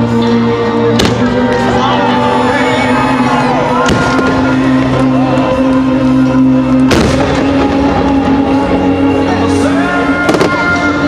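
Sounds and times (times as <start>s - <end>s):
loud music: 0.0s - 11.0s
firework bangs: 6.9s - 8.0s.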